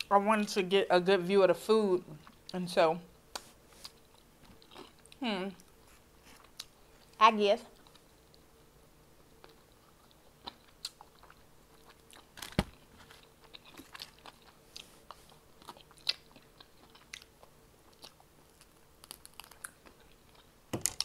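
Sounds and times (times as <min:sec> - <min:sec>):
crunchy chewing: 0:09.3 - 0:21.0.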